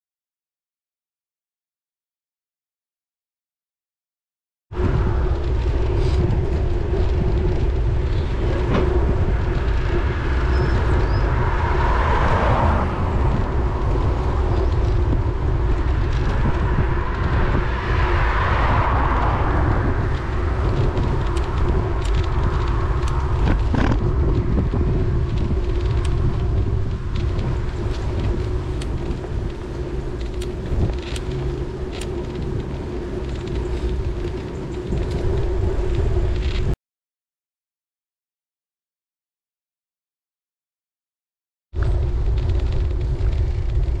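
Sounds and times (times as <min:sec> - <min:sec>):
tyre road noise: 0:04.7 - 0:36.8, 0:41.8 - 0:44.0
wind rumble on microphone: 0:04.7 - 0:36.8, 0:41.8 - 0:44.0
passing traffic: 0:04.8 - 0:36.8, 0:41.8 - 0:44.0
bicycle knocks and rattles: 0:05.2 - 0:11.0, 0:20.0 - 0:36.8.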